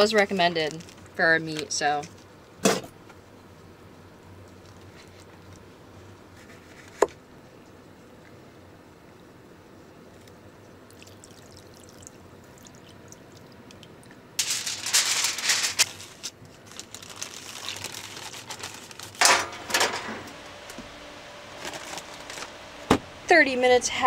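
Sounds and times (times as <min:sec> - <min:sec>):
aluminium foil crinkling: 0:00.0 - 0:02.3, 0:14.4 - 0:20.0, 0:21.5 - 0:22.6.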